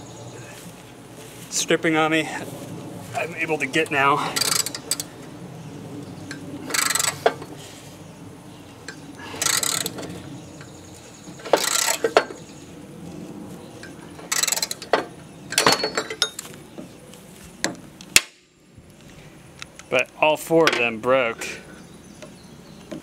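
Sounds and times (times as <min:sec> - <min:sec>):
socket ratchet wrench clicking: 0:04.4 - 0:05.1, 0:06.7 - 0:07.3, 0:09.4 - 0:10.0
metal clinks: 0:13.8 - 0:16.5.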